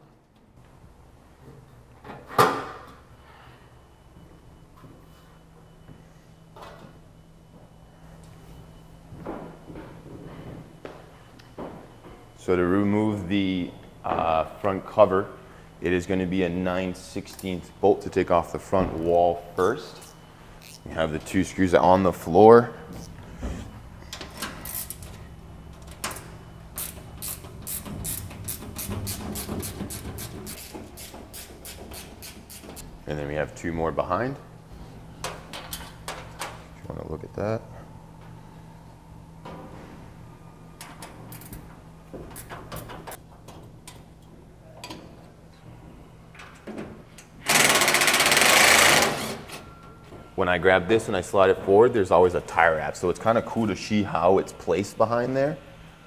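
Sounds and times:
ratchet wrench clicking: 26.8s - 32.8s
loud fast rasping rattle: 47.4s - 49.3s.

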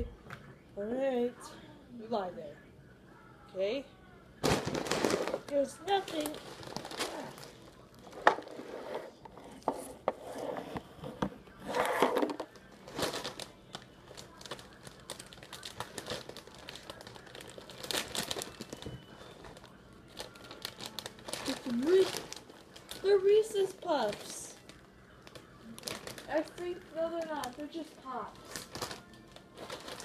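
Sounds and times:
plastic bag crinkling: 4.4s - 8.9s, 11.8s - 30.0s.

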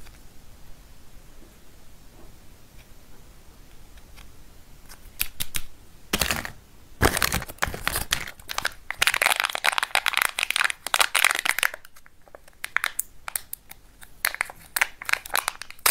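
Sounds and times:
foil wrapper crinkling: 6.2s - 15.9s.

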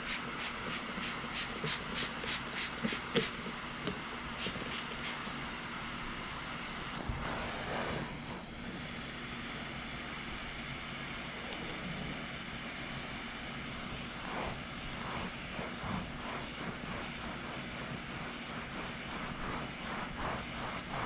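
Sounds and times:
steam cleaner humming and hissing: 0.0s - 5.6s, 12.5s - 21.0s
towel rubbing on carpet: 7.2s - 8.6s, 13.8s - 21.0s.

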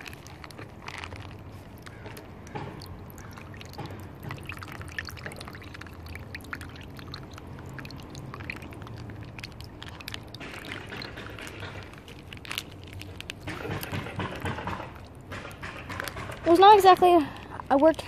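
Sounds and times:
water trickling and splashing: 0.0s - 18.0s.

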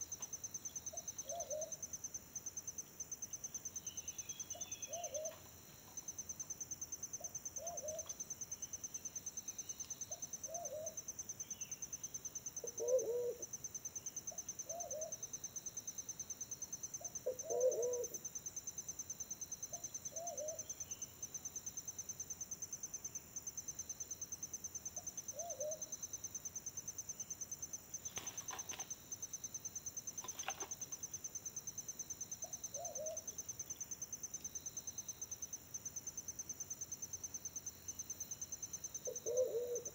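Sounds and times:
pigeon cooing: 1.2s - 1.8s, 4.8s - 5.4s, 7.6s - 8.1s, 12.6s - 13.5s, 17.3s - 18.2s, 32.8s - 33.3s, 39.1s - 39.9s.

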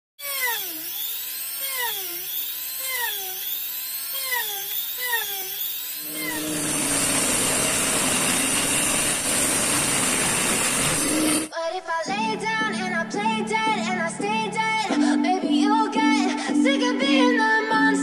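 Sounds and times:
blade cutting through board: 0.2s - 11.5s
rotary grinder drilling wood: 0.2s - 11.6s.

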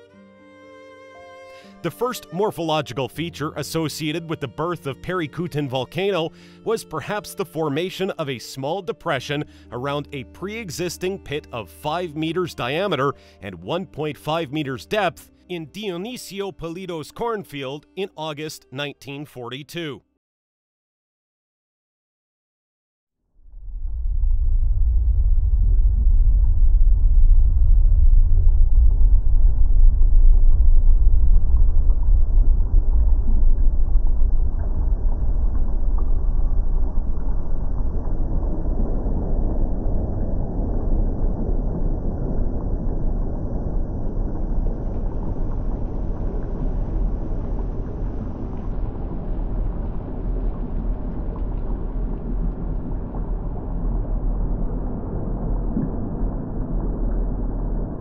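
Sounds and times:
volcanic eruption rumble: 23.4s - 58.0s.

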